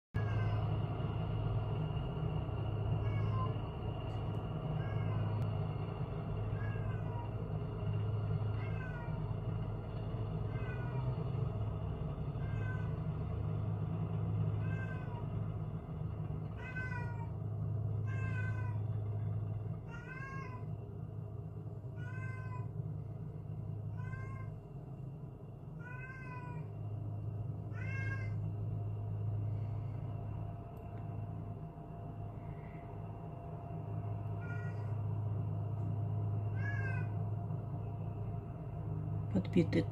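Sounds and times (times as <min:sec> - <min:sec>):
cat meowing: 0:00.2 - 0:00.7, 0:03.0 - 0:03.6, 0:04.8 - 0:05.4, 0:06.5 - 0:07.3, 0:08.6 - 0:09.2, 0:10.5 - 0:11.1, 0:12.4 - 0:13.0, 0:14.6 - 0:15.2, 0:16.6 - 0:17.3, 0:18.0 - 0:18.9, 0:19.8 - 0:20.7, 0:22.0 - 0:22.7, 0:23.9 - 0:24.6, 0:25.8 - 0:26.7, 0:27.7 - 0:28.4, 0:34.4 - 0:35.0, 0:36.5 - 0:37.2
low rumble: 0:00.2 - 0:39.9.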